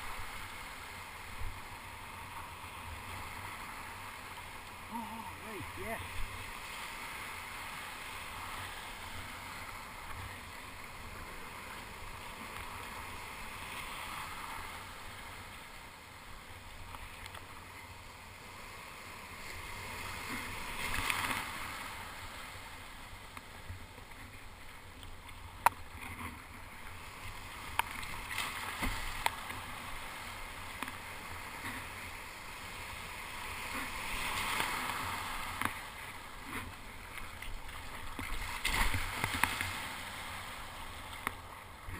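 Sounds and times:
surf rushing: 0:00.0 - 0:15.8, 0:25.8 - 0:41.9.

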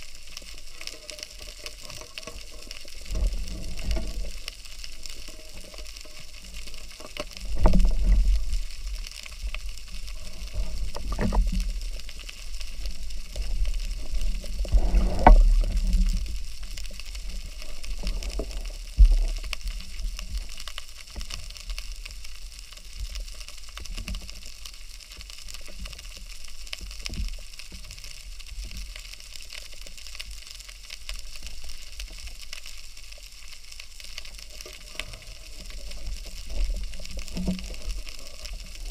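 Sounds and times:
muffled underwater rushing: 0:00.0 - 0:23.3, 0:31.1 - 0:38.9.

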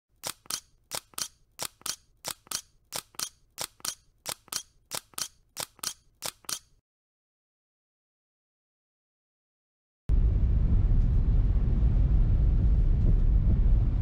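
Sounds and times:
camera shutter double clicks: 0:00.2 - 0:06.8.

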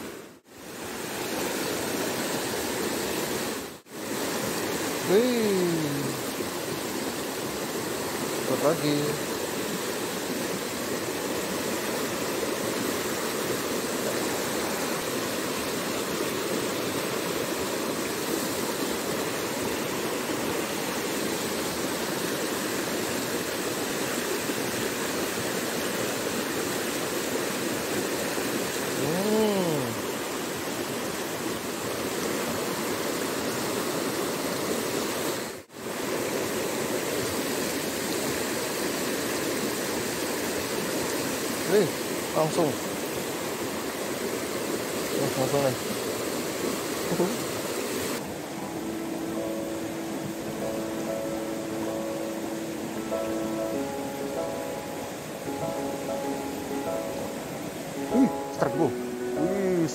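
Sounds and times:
stream rapids rushing: 0:00.0 - 0:59.9.

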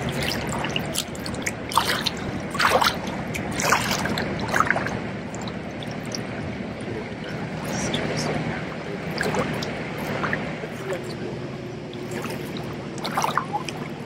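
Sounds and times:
people wading splashes: 0:00.0 - 0:14.0
small waves lapping: 0:00.0 - 0:14.0.

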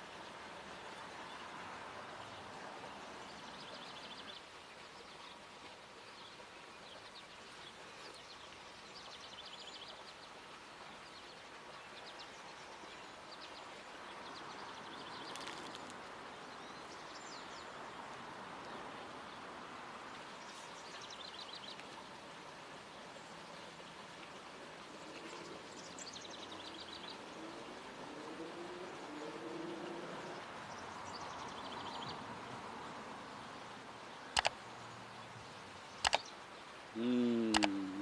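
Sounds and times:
steady background hiss: 0:00.0 - 0:38.0
small birds chirping: 0:11.9 - 0:19.4, 0:33.4 - 0:38.0
sharp click: 0:34.4 - 0:34.6, 0:36.0 - 0:36.3, 0:37.5 - 0:37.8.

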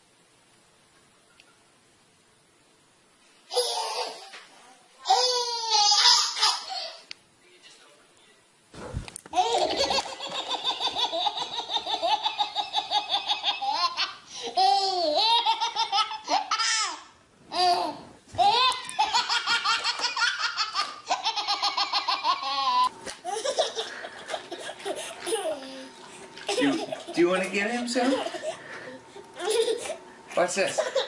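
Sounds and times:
baby laughing: 0:03.5 - 0:04.2, 0:05.1 - 0:07.0, 0:09.4 - 0:27.3, 0:29.4 - 0:30.0, 0:30.6 - 0:31.0.

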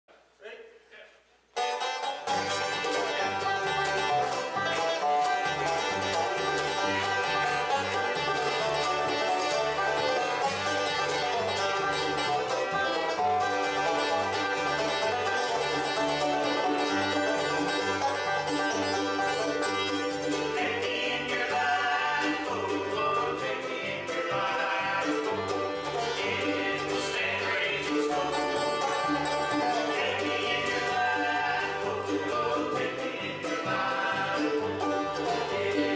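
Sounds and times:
bluegrass band playing: 0:01.5 - 0:35.9
upright bass pattern: 0:02.2 - 0:24.0.

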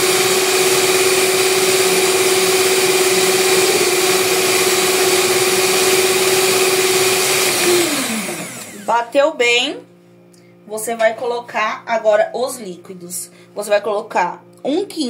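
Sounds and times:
stand mixer motor whining: 0:00.0 - 0:09.1.

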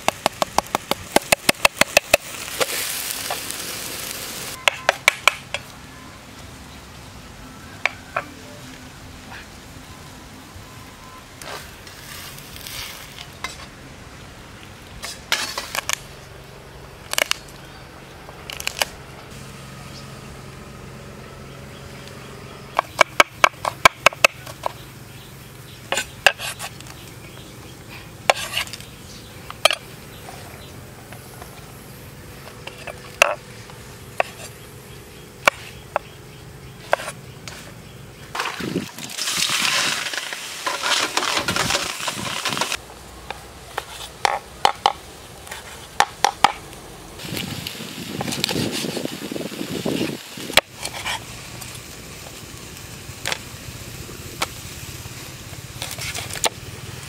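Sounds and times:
frying pan sizzling: 0:00.0 - 0:05.2, 0:38.3 - 0:43.0, 0:46.4 - 0:57.0
knife chopping on wooden board: 0:28.3 - 0:28.7.

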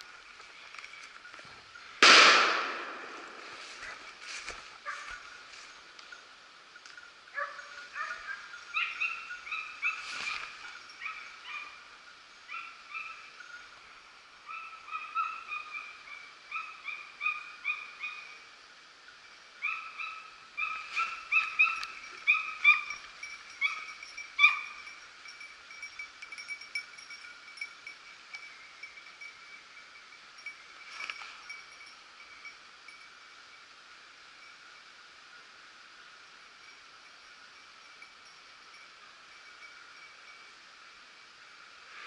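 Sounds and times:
distant hounds baying: 0:07.3 - 0:13.6, 0:14.4 - 0:18.4, 0:19.6 - 0:25.0.

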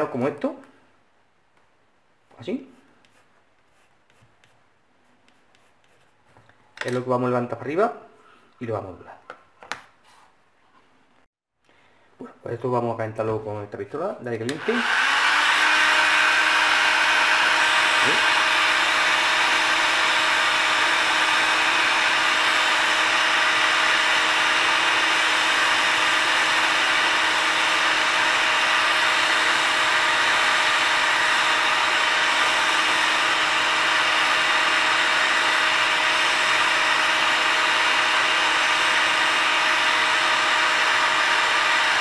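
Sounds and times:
heat gun blowing air: 0:14.5 - 0:42.0.

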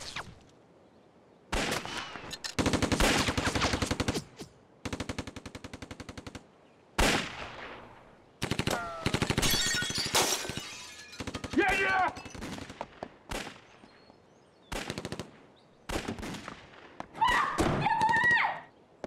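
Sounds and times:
rapid gunfire bursts: 0:02.6 - 0:07.3, 0:08.4 - 0:09.4, 0:14.7 - 0:16.5.

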